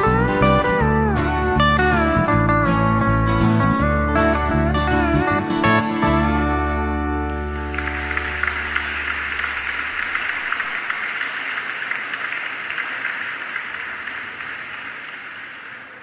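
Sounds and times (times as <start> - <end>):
audience applauding: 7.3 - 16.0.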